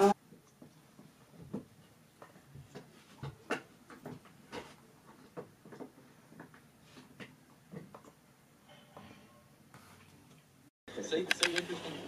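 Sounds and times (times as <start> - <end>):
laptop keyboard typing: 11.2 - 11.8.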